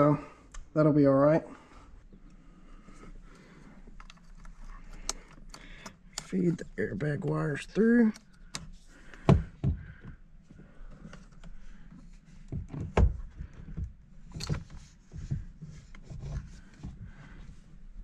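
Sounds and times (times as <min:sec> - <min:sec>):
rubbing and rustling: 0:14.2 - 0:18.0.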